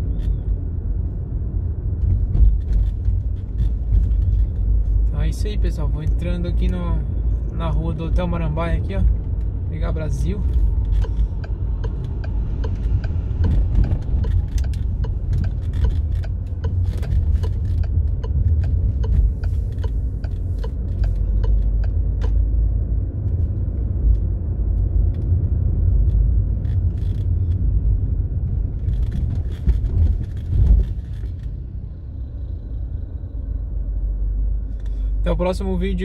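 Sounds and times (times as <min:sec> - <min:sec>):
car engine and tyres rumbling: 0:00.0 - 0:36.0
turn indicator ticking: 0:09.0 - 0:22.5.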